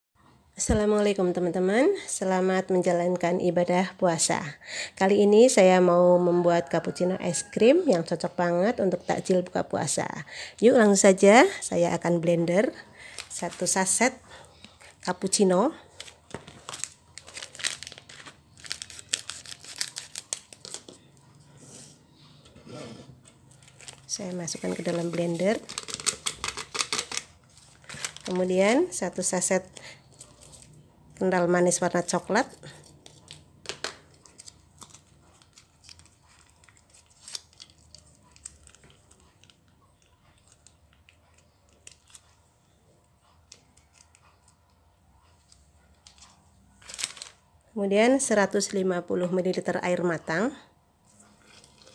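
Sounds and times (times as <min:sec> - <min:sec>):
foil sachets crinkling: 0:13.0 - 0:14.1, 0:14.8 - 0:21.1, 0:23.5 - 0:30.7, 0:31.7 - 0:39.6, 0:46.8 - 0:47.4.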